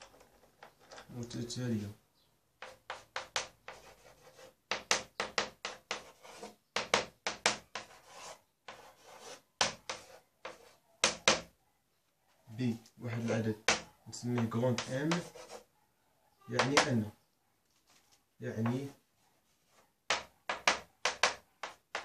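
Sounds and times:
chalk strokes on blackboard: 0:02.6 - 0:11.2, 0:14.4 - 0:15.7, 0:19.5 - 0:22.0.

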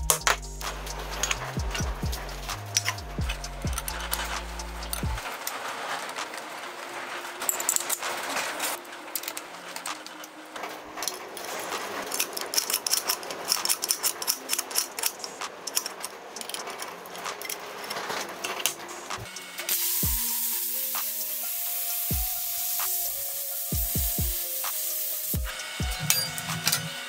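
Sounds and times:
faint background music: 0:00.0 - 0:27.0
steel parts clinking: 0:00.0 - 0:27.0
loud steady hiss: 0:18.7 - 0:27.0.

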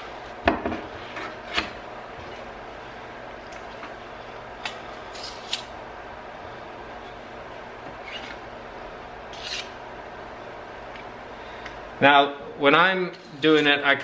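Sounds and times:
steady background hum: 0:00.0 - 0:14.0
putty knife scraping clay: 0:09.3 - 0:09.8.

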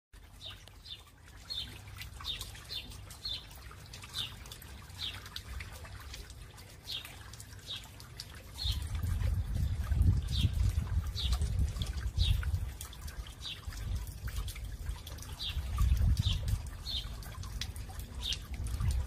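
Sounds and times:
water trickling over stones: 0:00.1 - 0:19.0.

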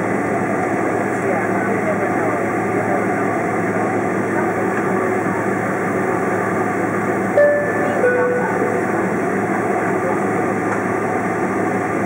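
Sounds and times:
jet engines at low power: 0:00.0 - 0:12.0
low steady cabin hum: 0:07.2 - 0:12.0.

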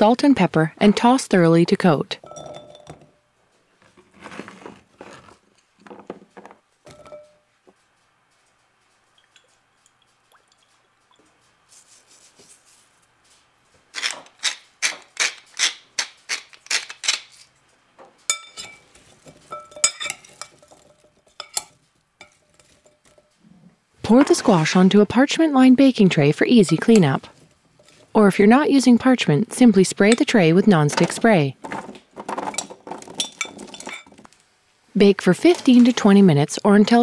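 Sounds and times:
metal spoon clinking on glass bowl: 0:02.2 - 0:03.1, 0:06.9 - 0:07.4, 0:18.3 - 0:18.8, 0:19.5 - 0:23.3
spice mill grinding: 0:13.9 - 0:17.4.

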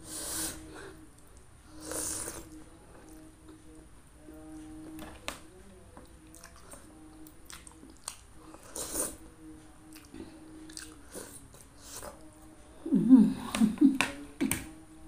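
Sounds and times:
soft chewing: 0:00.1 - 0:14.8.

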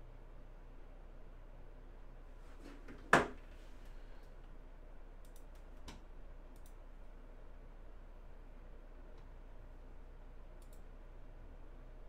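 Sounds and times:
light ticks: 0:05.2 - 0:06.8, 0:10.6 - 0:10.9.

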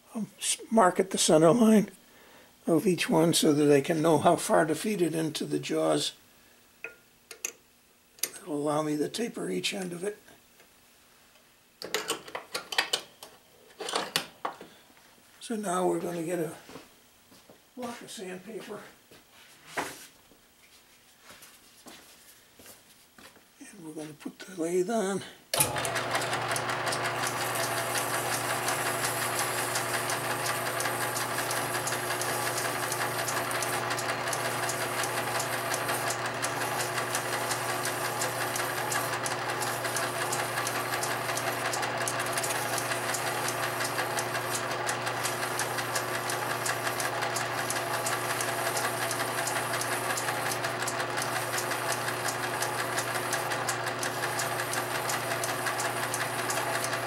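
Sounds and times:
metal lathe humming: 0:25.6 - 0:57.0.

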